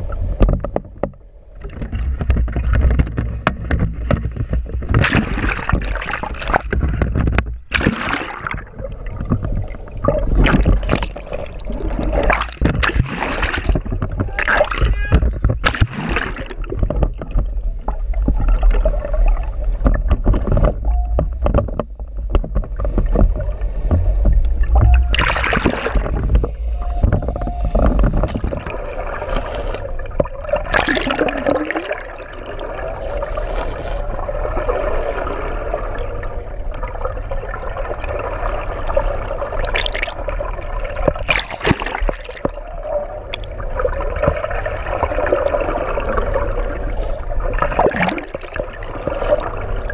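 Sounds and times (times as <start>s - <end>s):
low rumble: 0.0s - 39.5s
underwater gurgling rush: 0.0s - 49.9s.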